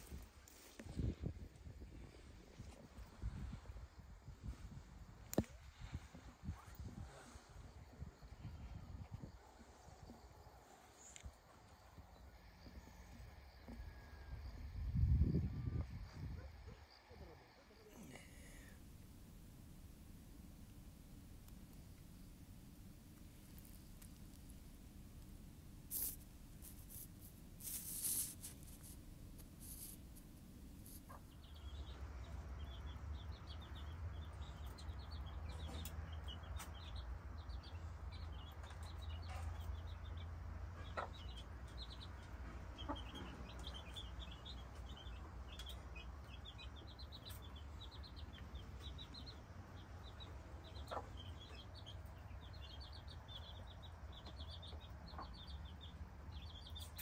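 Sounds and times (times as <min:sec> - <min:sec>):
chicks peeping: 0:25.9 - 0:29.0, 0:29.6 - 0:30.0, 0:30.8 - 0:57.0.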